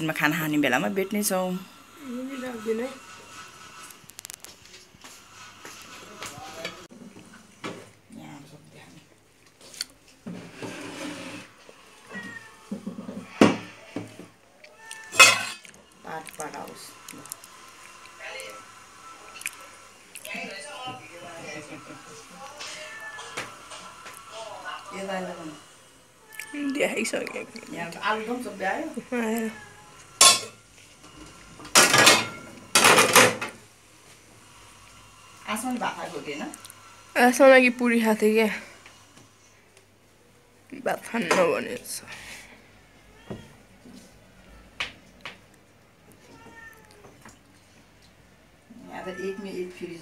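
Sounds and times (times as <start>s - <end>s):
cat meowing: 11.9s - 13.9s, 14.6s - 15.6s, 22.3s - 23.9s, 26.2s - 26.8s, 43.1s - 44.8s, 46.2s - 47.2s, 48.7s - 49.8s
metal pots clanking: 30.2s - 30.6s.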